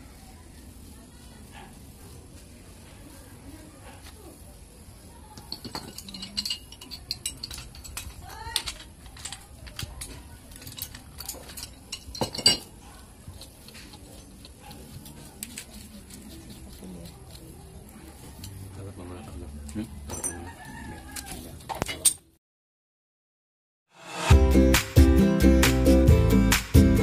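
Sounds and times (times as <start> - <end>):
pipe wrench clinking on metal fitting: 5.5 - 8.8.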